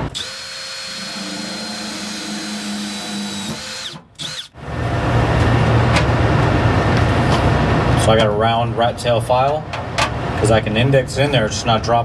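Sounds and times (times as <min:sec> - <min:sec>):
cordless drill boring sheet metal: 0:00.0 - 0:04.6.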